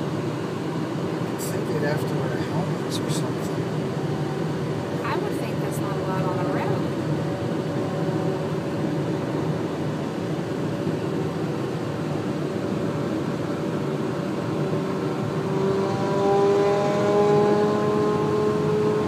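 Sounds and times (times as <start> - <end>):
road and tyre noise: 0.0 - 19.0
engine tone climbing in pitch: 14.7 - 19.0.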